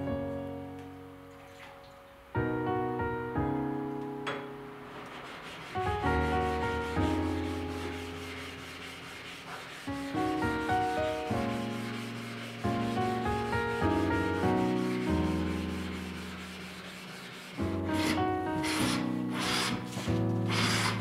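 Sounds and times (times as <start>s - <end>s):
gentle piano music: 0.0s - 21.0s
scratchy pulsing rubbing noise: 5.0s - 21.0s.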